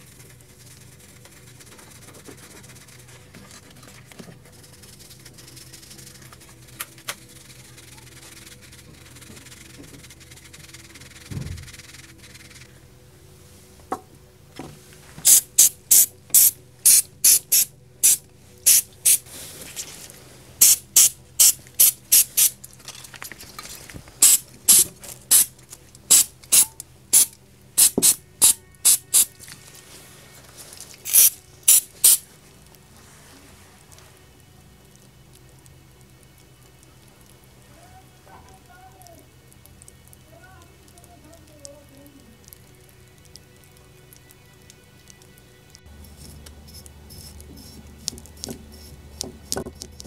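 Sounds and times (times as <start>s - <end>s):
faint brush scrubbing: 0.0s - 12.7s, 17.3s - 25.5s, 28.4s - 32.2s, 32.9s - 34.0s, 45.9s - 50.0s
aerosol spray can hissing: 15.2s - 19.8s, 20.6s - 22.6s, 24.2s - 25.5s, 26.1s - 29.4s, 31.0s - 32.3s, 46.1s - 50.0s.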